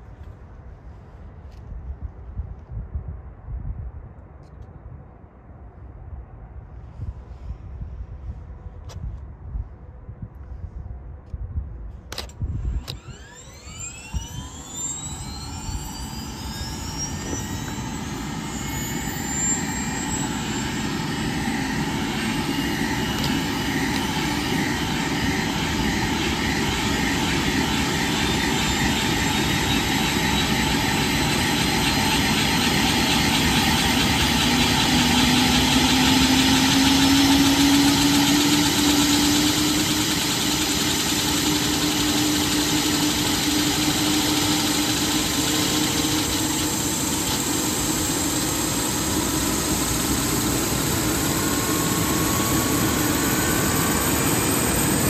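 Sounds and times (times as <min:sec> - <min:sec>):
helicopter engines whining: 0:12.1 - 0:55.0
rotor spinning up: 0:12.6 - 0:55.0
steady hum rising in pitch: 0:12.6 - 0:55.0.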